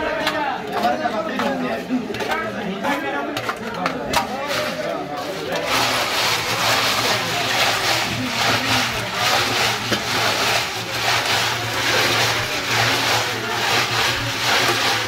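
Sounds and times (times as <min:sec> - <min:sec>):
metal pot grinding against ice: 0:03.4 - 0:15.0.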